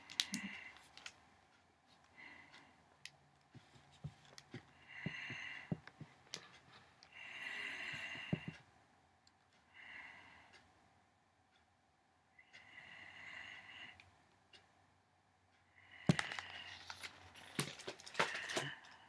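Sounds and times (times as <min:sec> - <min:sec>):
soft breathing: 0:00.0 - 0:01.2, 0:01.9 - 0:02.9, 0:03.5 - 0:08.7, 0:09.5 - 0:10.7, 0:12.4 - 0:14.6, 0:15.5 - 0:19.0.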